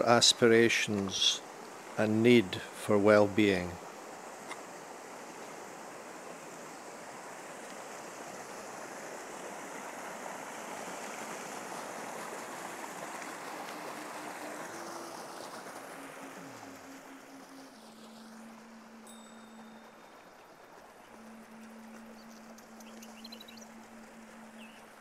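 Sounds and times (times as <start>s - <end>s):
stream running over stones: 0.0s - 25.0s
faint low held note: 16.1s - 25.0s.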